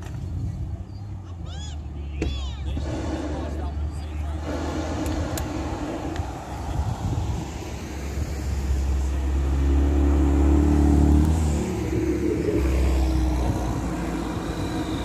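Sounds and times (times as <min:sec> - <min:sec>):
propane burner blast: 0:02.7 - 0:08.2.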